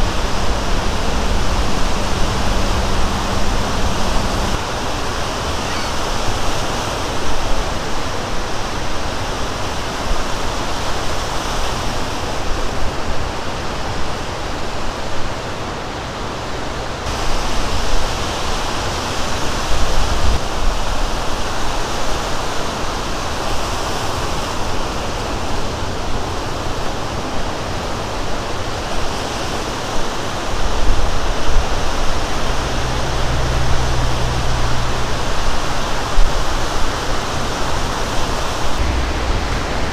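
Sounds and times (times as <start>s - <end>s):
low rumble: 0.0s - 4.6s, 31.0s - 39.9s
surf breaking on shore: 0.0s - 14.4s, 17.0s - 39.9s.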